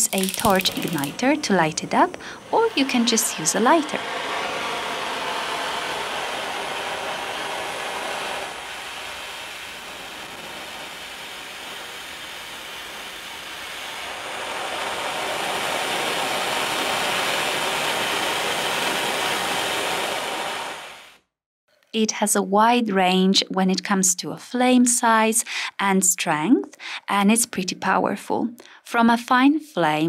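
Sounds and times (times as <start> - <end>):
hand torch flame hissing: 0.0 - 21.2.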